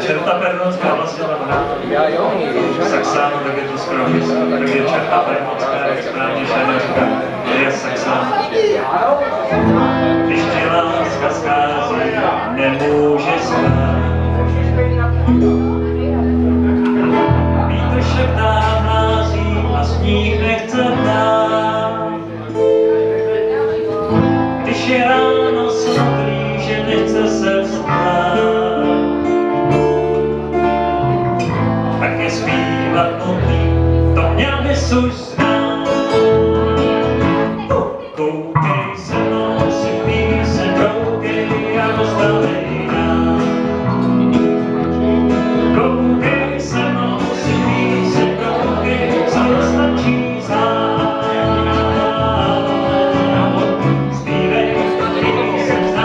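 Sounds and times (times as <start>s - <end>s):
guitar band playing: 0.0s - 56.0s
person singing: 16.8s - 56.0s.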